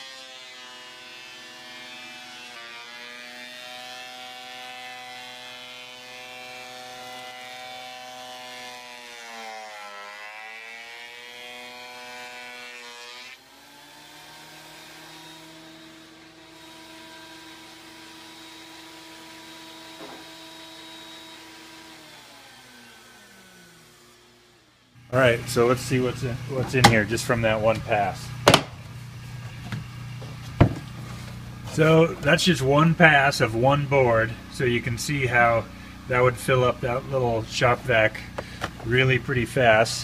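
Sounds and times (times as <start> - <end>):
thickness planer running: 0.0 - 40.0
shop vacuum running: 10.0 - 40.0.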